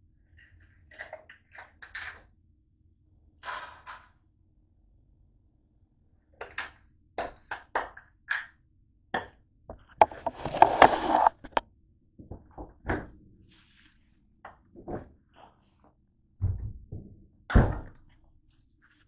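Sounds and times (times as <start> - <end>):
objects clattering on a counter: 3.4 - 4.2
rustling clatter: 9.8 - 11.6.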